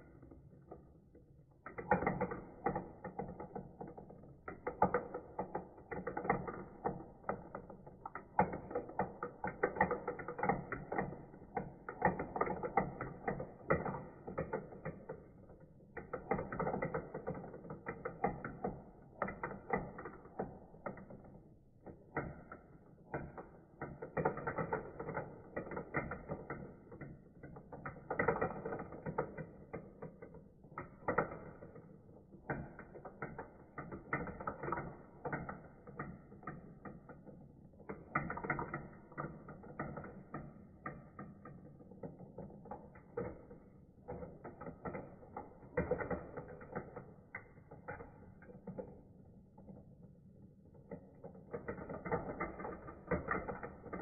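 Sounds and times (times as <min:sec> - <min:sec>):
marbles clattering through toy track: 0:01.6 - 0:54.0.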